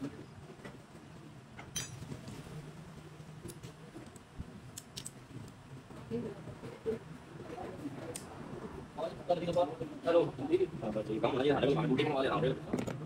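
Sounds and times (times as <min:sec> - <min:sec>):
metal studs and pliers clinking: 0:01.7 - 0:02.1.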